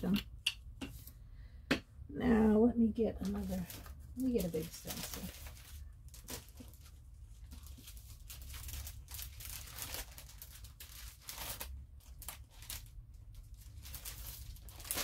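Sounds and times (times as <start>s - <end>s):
plastic sheets and papers rustling: 3.0s - 15.0s.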